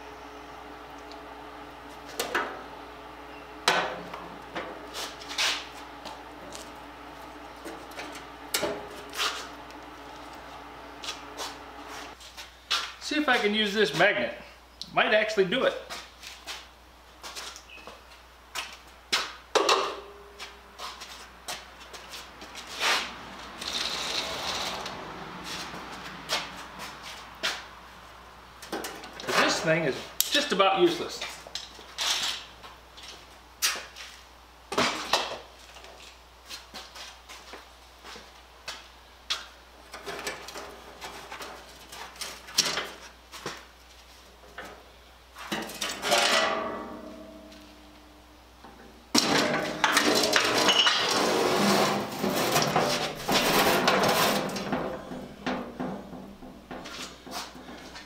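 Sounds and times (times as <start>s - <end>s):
metal sheets and clamps clattering: 45.5s - 47.7s, 48.7s - 58.0s
steel clanking and knocking: 45.5s - 47.7s, 51.9s - 58.0s
metal scraping and ringing: 46.0s - 48.0s.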